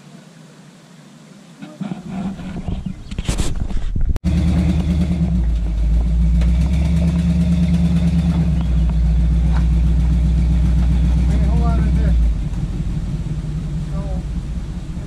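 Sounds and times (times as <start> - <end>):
engine running low: 1.6 - 15.0.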